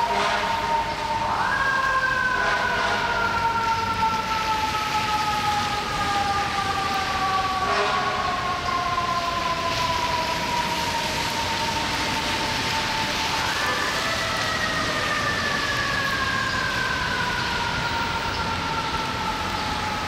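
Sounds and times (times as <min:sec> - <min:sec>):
fire truck siren: 0:00.0 - 0:20.0
street traffic: 0:00.0 - 0:20.0
rain hissing: 0:09.0 - 0:20.0.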